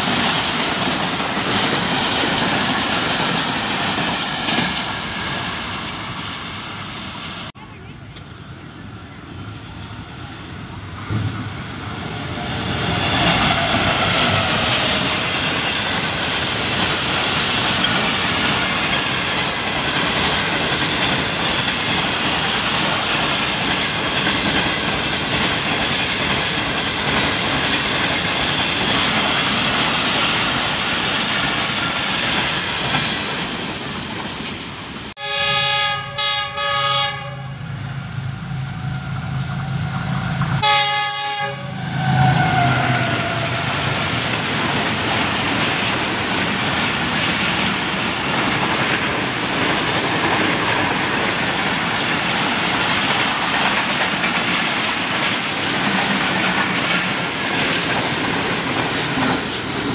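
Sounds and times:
train wheels on rails: 0:00.0 - 0:59.9
locomotive horn blasts: 0:35.2 - 0:37.6, 0:40.6 - 0:42.8.

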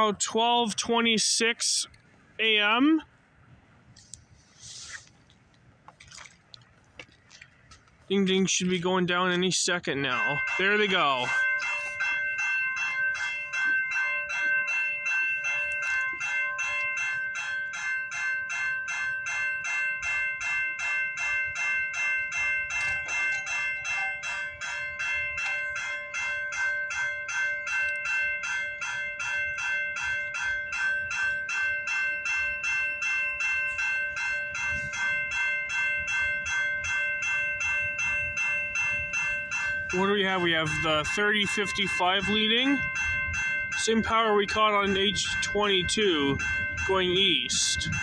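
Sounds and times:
level crossing warning bell: 0:00.0 - 0:03.2, 0:08.0 - 0:48.0.

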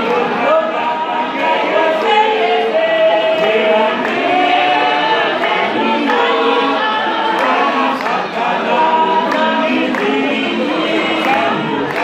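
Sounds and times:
congregation singing a hymn: 0:00.0 - 0:12.0
hands clapping: 0:03.4 - 0:12.0.

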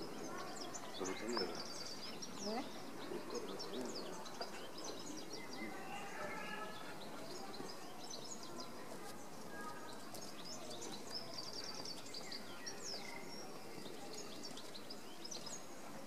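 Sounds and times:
low background murmur: 0:00.0 - 0:16.0
small birds chirping: 0:00.0 - 0:16.0.

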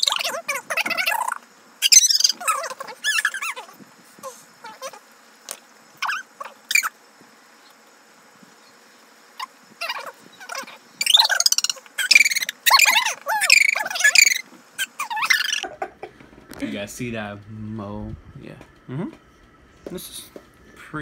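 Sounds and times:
high-pitched squealing giggles: 0:00.0 - 0:05.1, 0:06.0 - 0:06.9, 0:09.4 - 0:16.7.

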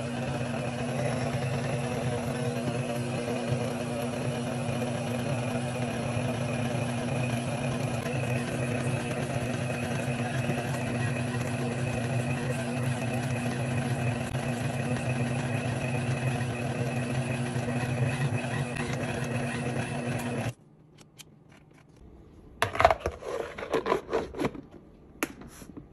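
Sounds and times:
stand mixer motor humming: 0:00.0 - 0:20.5
hand scraping a plastic bowl: 0:22.9 - 0:24.8.

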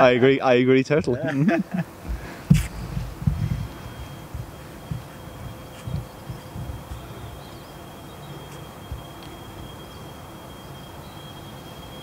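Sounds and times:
faint low thumps: 0:02.0 - 0:07.1.

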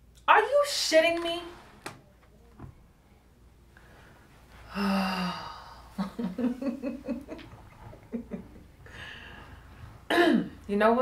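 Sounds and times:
woman laughing: 0:06.0 - 0:08.7.

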